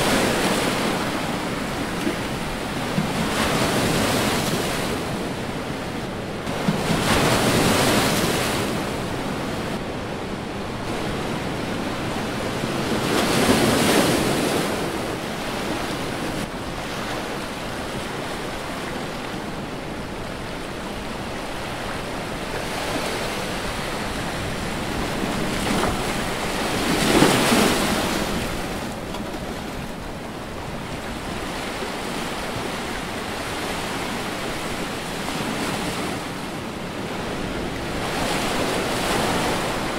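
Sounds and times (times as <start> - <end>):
ocean surf on rocky shore: 0.0 - 39.9
waves breaking: 0.0 - 39.9.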